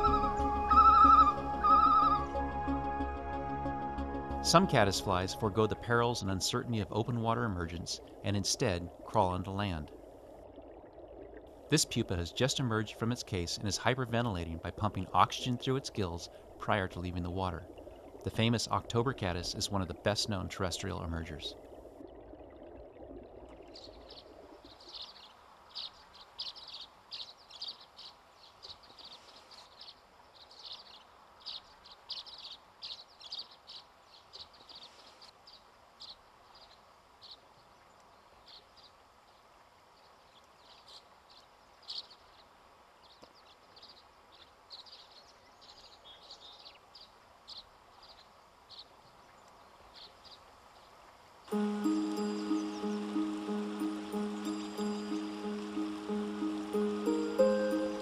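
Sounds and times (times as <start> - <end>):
music: 0.0 - 6.3, 51.5 - 58.0
faint steady hiss: 4.4 - 58.0
birds chirping: 51.5 - 58.0.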